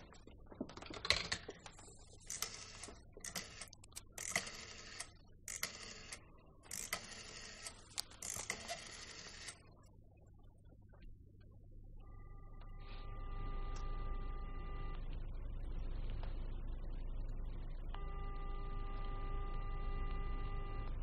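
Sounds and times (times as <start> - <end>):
rotary telephone dial whirring: 2.2 - 9.6.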